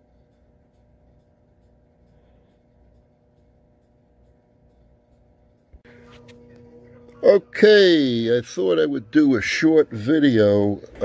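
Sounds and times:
faint high ticks: 0.0s - 5.8s
faint steady hum: 0.0s - 11.0s.

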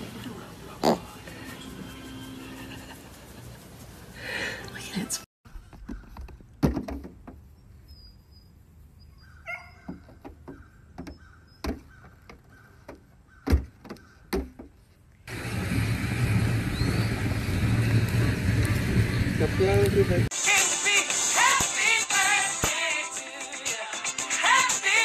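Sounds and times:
loud outdoor rumble: 15.3s - 20.3s.

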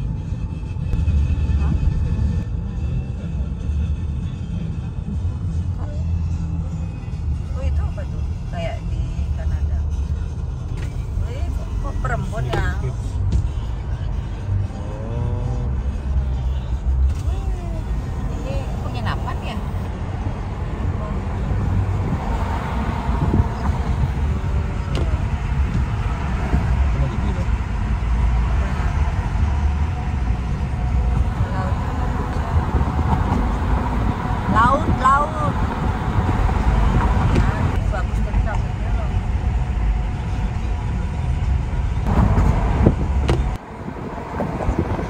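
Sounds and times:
car road noise rumble: 0.0s - 45.0s.

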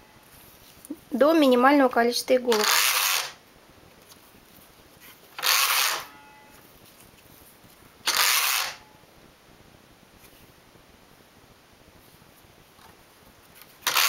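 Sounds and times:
knitting machine carriage rasp: 2.5s - 3.4s, 5.4s - 6.1s, 8.1s - 8.8s.

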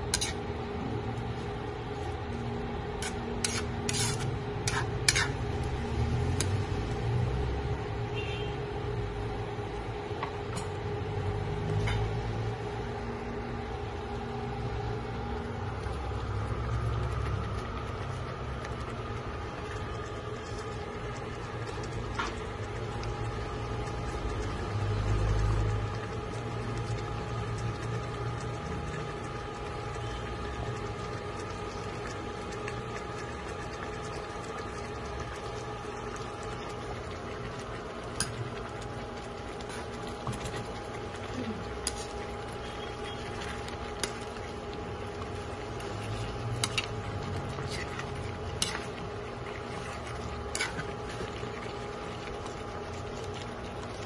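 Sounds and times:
curry simmering in a wok: 0.0s - 54.0s
kitchen hum: 0.0s - 54.0s.

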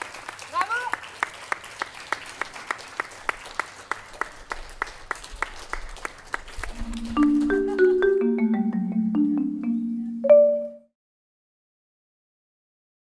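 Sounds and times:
audience clapping: 0.0s - 8.6s
marimba-like mallet tune: 6.7s - 10.9s.

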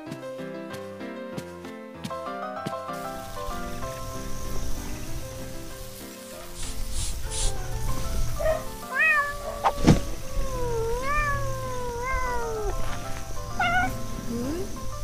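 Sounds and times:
background music: 0.0s - 15.0s
cat meowing: 8.4s - 14.7s
sharp knock: 9.6s - 10.2s.

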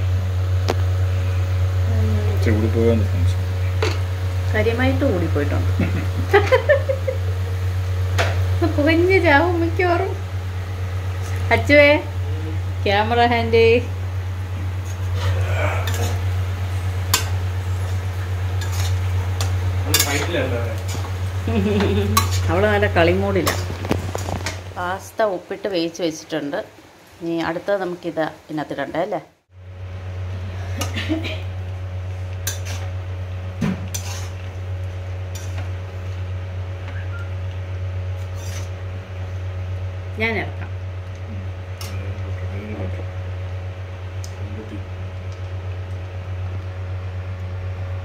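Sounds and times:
low hum: 0.0s - 25.6s, 29.5s - 48.0s
spatula scraping metal pan: 18.6s - 20.3s, 32.4s - 32.9s, 33.9s - 34.4s, 38.2s - 38.7s.

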